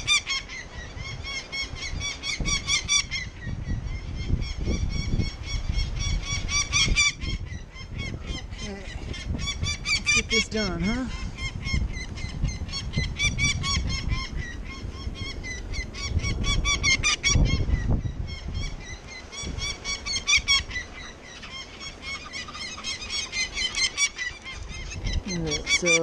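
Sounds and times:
wind and handling rumble: 0.0 - 26.0
falcon alarm call: 18.3 - 26.0.

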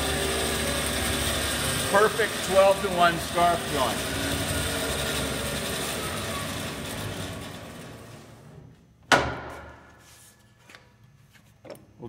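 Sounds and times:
bandsaw running: 0.0 - 8.6
sharp knock: 9.1 - 9.9.

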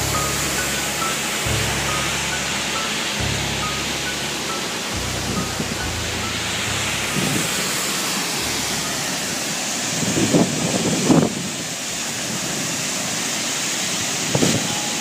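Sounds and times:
waterfall roaring: 0.0 - 15.0
wind noise on microphone: 7.1 - 7.7, 9.9 - 12.7, 14.1 - 14.8.

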